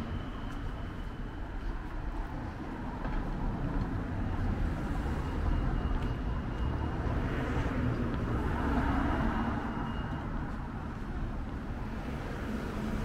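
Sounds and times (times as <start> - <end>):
traffic rumble: 0.0 - 13.0.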